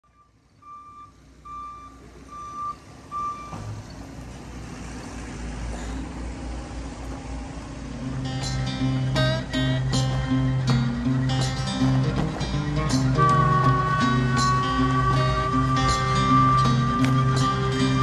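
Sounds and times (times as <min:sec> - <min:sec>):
vehicle reversing alarm beeping: 0:00.0 - 0:04.1, 0:08.0 - 0:18.0
low engine rumble: 0:00.0 - 0:18.0
guitar music: 0:07.9 - 0:18.0.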